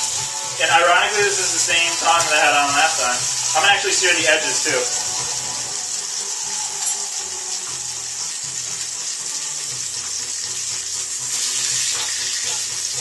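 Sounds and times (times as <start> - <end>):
fish sizzling in frying pan: 0.0 - 13.0.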